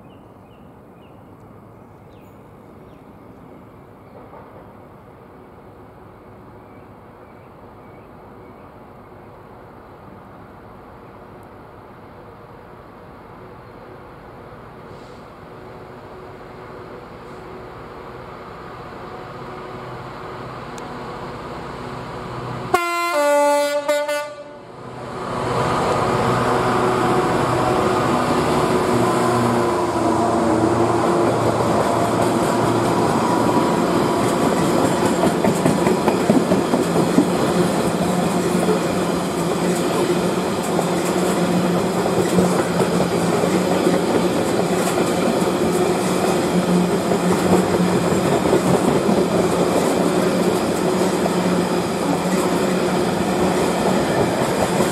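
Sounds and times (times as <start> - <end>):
freight train rumbling past: 2.4 - 54.9
two-tone train horn: 22.7 - 24.8
wheels clattering over rail joints: 31.9 - 54.9.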